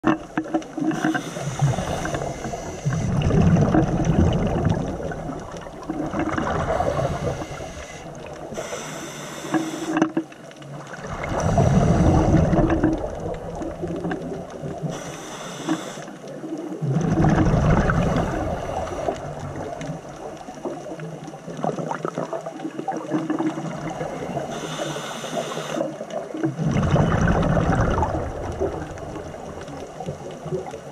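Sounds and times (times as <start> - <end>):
bubbling exhale underwater: 0.0 - 8.8, 10.9 - 15.0, 16.6 - 21.0, 21.6 - 30.9
regulator hissing inhale: 0.9 - 3.2, 6.7 - 10.0, 14.9 - 16.2, 24.4 - 25.9.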